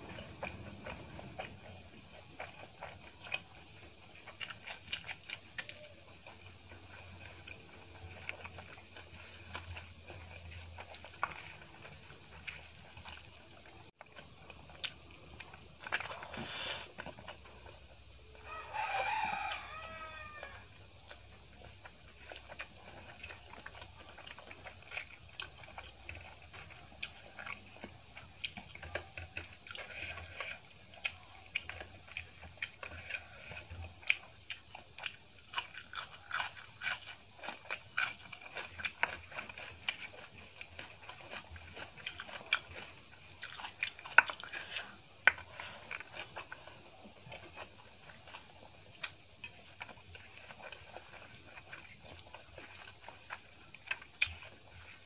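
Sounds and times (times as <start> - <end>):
chewing and smacking: 0.0 - 55.0
rooster crowing: 18.3 - 20.8.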